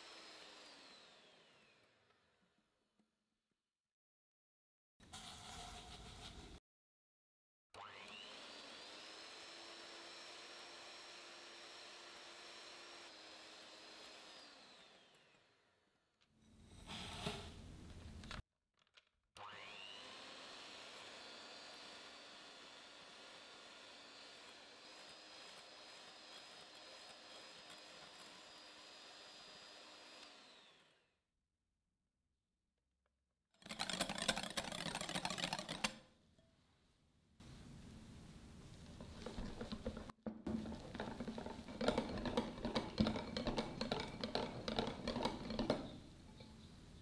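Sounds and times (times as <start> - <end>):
electric hand mixer motor whine: 0.0 - 2.4, 7.8 - 15.8, 19.4 - 31.1, 39.0 - 46.2
clicking and scraping: 33.6 - 36.5, 38.8 - 46.8.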